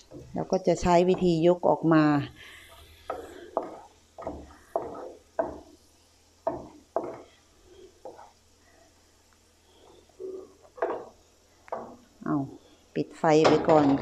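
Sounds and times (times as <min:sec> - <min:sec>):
oil sizzling: 0:00.0 - 0:12.9
spatula scraping a pan: 0:02.4 - 0:05.7, 0:06.5 - 0:08.9, 0:09.7 - 0:11.2.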